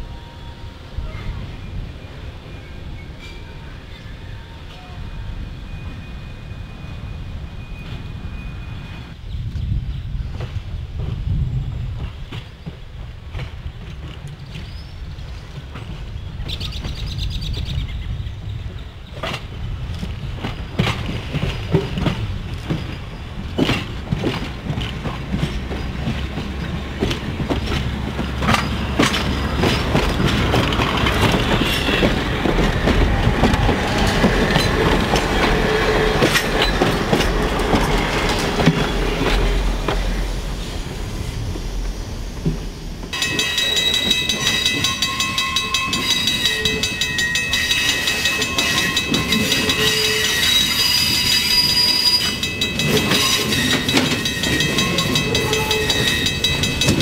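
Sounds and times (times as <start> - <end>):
wheels clicking over rail joints: 19.1 - 40.2, 42.4 - 57.0
electric train passing: 20.3 - 57.0.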